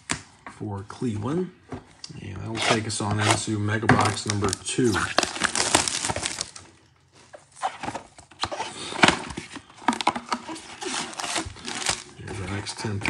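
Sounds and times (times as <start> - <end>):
cardboard box being torn open: 4.9 - 6.5, 10.0 - 12.6.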